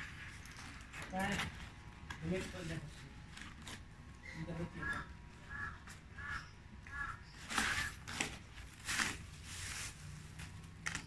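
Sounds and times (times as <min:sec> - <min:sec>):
faint bird call: 0:04.2 - 0:08.0
packaging rustling and crinkling: 0:07.4 - 0:11.0.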